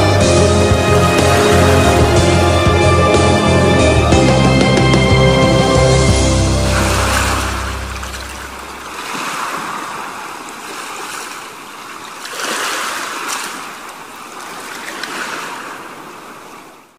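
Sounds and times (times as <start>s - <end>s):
low music note: 0.0s - 8.9s
waves rushing: 0.0s - 16.9s.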